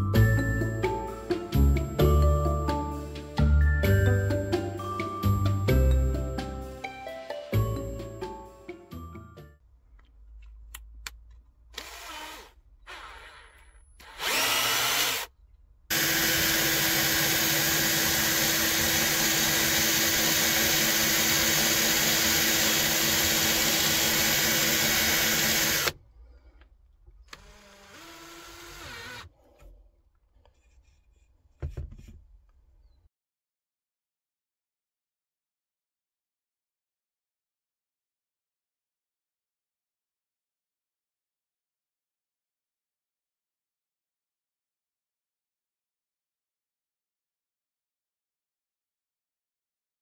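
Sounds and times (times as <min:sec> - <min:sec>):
electric drill boring into wood: 0:11.8 - 0:15.3, 0:15.9 - 0:26.0, 0:27.3 - 0:29.3.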